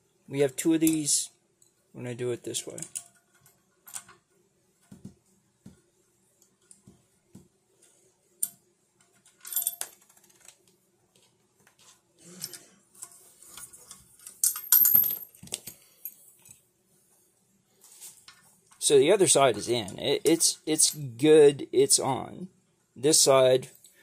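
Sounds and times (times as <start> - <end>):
small metal parts clinking: 2.7 - 4.2, 12.3 - 16.6.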